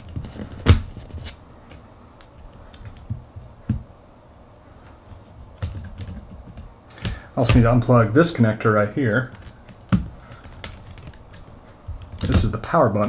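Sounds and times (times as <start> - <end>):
fingers clicking on laptop parts: 0.0 - 3.8, 5.0 - 7.8, 9.2 - 13.0.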